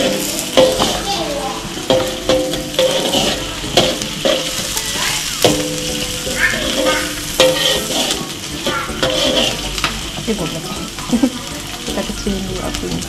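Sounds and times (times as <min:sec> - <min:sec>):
garlic sizzling in oil: 0:00.0 - 0:13.0
metal spatula scraping wok: 0:00.0 - 0:13.0.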